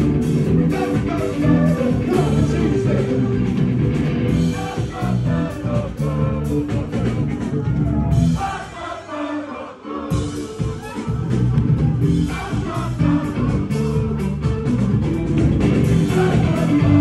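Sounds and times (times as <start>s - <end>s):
live funk band playing: 0.0s - 8.7s, 10.1s - 17.0s.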